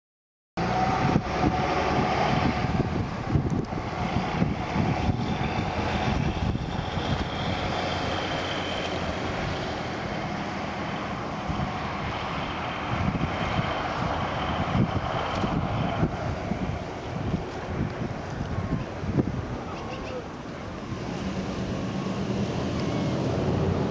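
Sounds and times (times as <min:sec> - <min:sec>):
wind rumbling on microphone: 0:00.6 - 0:23.9.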